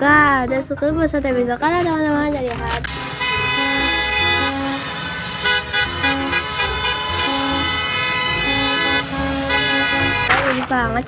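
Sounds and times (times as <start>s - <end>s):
short horn toots: 2.9s - 10.6s
horns at different pitches: 2.9s - 10.7s
long bus horn blast: 2.9s - 10.7s.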